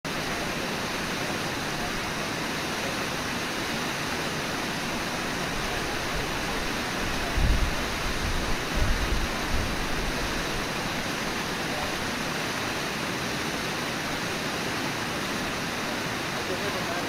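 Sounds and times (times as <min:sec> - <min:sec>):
waterfall and rapids roaring: 0:00.1 - 0:17.0.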